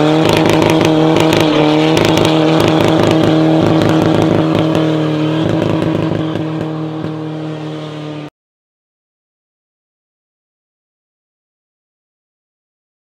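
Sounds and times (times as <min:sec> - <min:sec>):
diesel engine revving high: 0:00.0 - 0:08.3.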